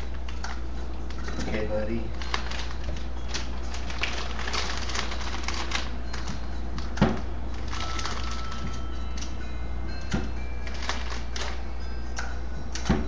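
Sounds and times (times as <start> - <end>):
wrapping paper crinkling: 1.0 - 6.4, 7.5 - 9.3, 10.6 - 11.6.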